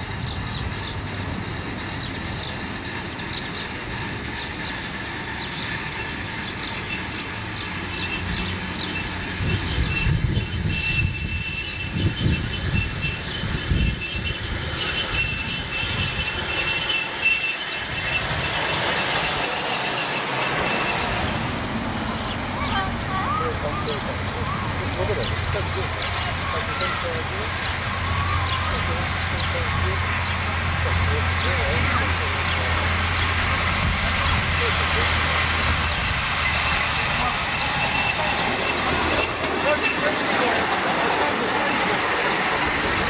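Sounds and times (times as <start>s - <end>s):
high wheel squeal: 0.0s - 43.0s
wheels clicking over track: 0.0s - 43.0s.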